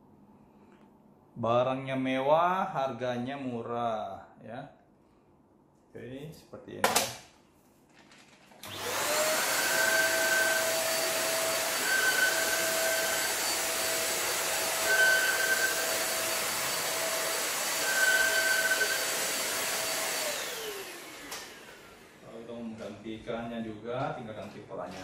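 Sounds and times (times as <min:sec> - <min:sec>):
vacuum cleaner motor whine: 0:08.6 - 0:22.6.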